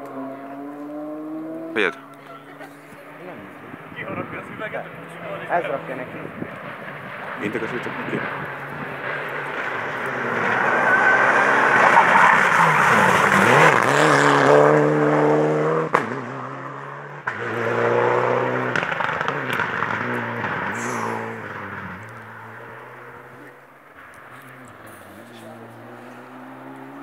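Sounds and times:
rally car engine through gear changes: 6.5s - 23.6s, 24.2s - 27.0s
sharp crack: 18.7s - 22.4s, 23.4s - 25.6s.

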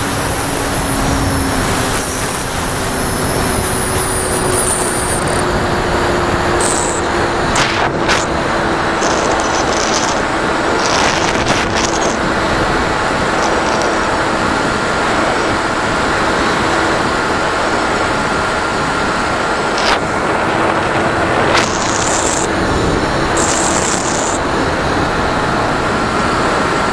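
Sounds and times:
motor and propeller tone: 0.0s - 26.9s
wind buffeting crackles: 0.0s - 26.9s
wind rushing: 0.1s - 9.1s.

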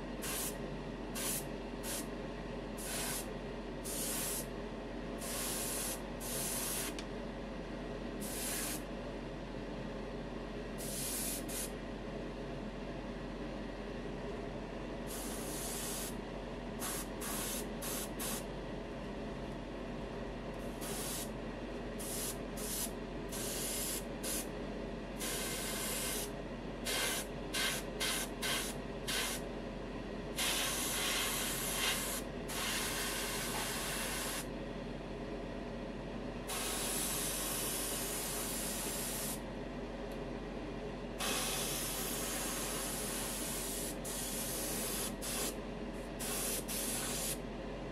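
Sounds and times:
steady hum: 0.0s - 47.9s
airbrush spraying hiss: 0.2s - 0.6s, 1.2s - 2.1s, 2.8s - 4.5s, 5.2s - 7.0s, 8.2s - 8.9s, 10.8s - 11.7s, 15.1s - 16.2s, 16.8s - 18.5s, 20.8s - 21.3s, 22.0s - 24.5s, 25.2s - 26.3s, 26.9s - 29.4s, 30.4s - 34.5s, 36.5s - 39.4s, 41.2s - 45.6s, 46.2s - 47.4s.

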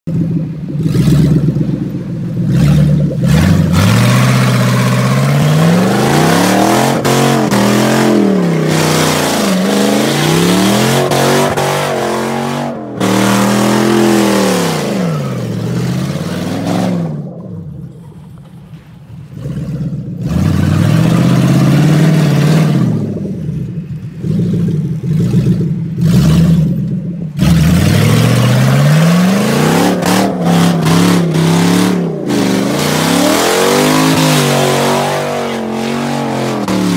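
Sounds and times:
engine revving hard: 0.7s - 17.2s, 19.4s - 23.3s, 27.4s - 36.9s.

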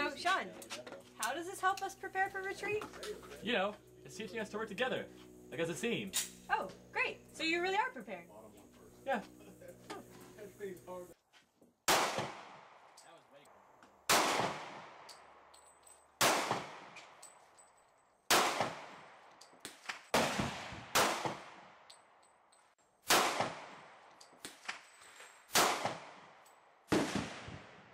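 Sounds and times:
pistol shots with echo: 11.9s - 12.7s, 14.1s - 15.0s, 16.2s - 17.0s, 18.3s - 19.1s, 19.7s - 21.8s, 23.1s - 24.5s, 25.5s - 27.9s.

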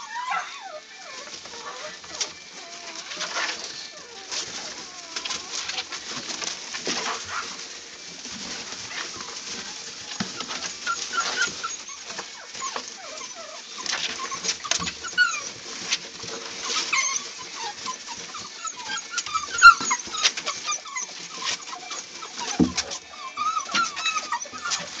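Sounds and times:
puppies whining and yipping: 0.0s - 25.0s
rustling in wood shavings: 0.0s - 25.0s.

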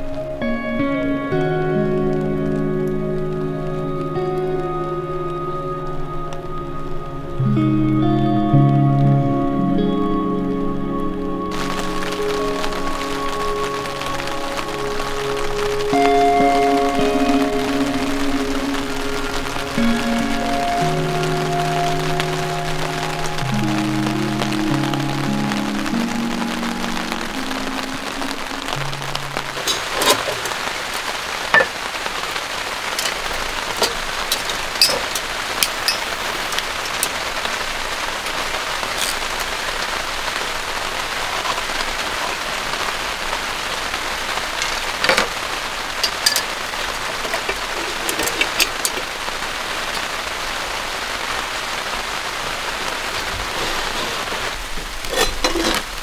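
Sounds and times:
heavy rain on a tent: 0.0s - 56.0s
dishes and cookware clattering: 31.5s - 31.7s, 33.8s - 36.1s, 55.1s - 55.9s.

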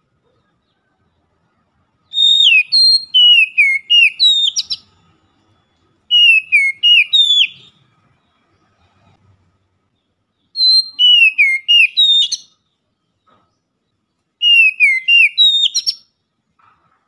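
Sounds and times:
bird singing whistled notes: 2.0s - 7.9s, 10.3s - 12.8s, 14.4s - 16.2s.

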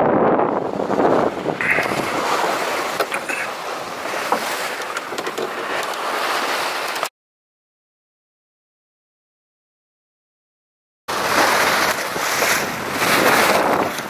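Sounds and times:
wind on microphone: 0.0s - 5.8s, 11.1s - 14.0s
water rushing along hull: 0.0s - 7.1s, 11.1s - 14.0s.

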